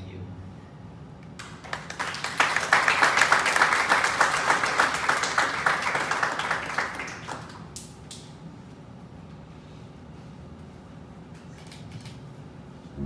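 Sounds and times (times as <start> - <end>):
audience applauding: 1.4 - 7.7.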